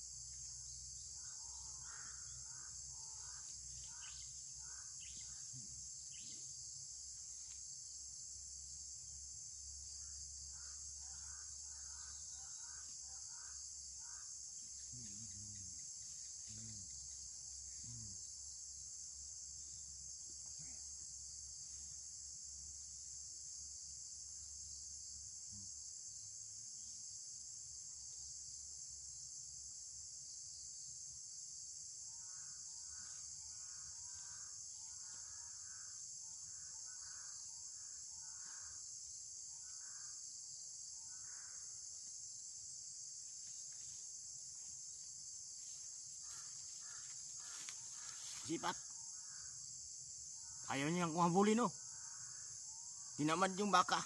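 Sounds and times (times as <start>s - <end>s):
high-pitched insect chorus: 0.0s - 54.0s.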